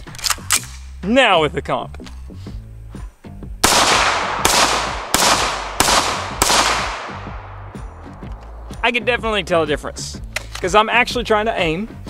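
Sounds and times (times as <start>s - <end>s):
rifle shots with echo: 3.6s - 7.9s.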